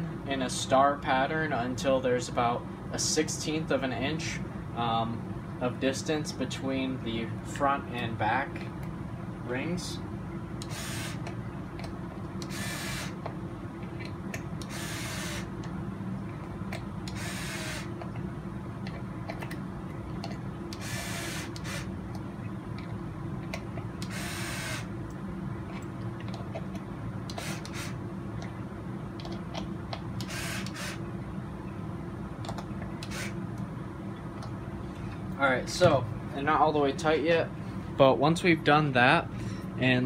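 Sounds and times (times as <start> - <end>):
steady low hum: 0.0 - 40.0
electric screwdriver running: 10.6 - 11.3, 12.4 - 13.2, 14.6 - 15.5, 17.1 - 17.9, 20.8 - 21.9, 24.0 - 24.9, 27.3 - 28.0, 30.2 - 31.0, 33.0 - 33.4.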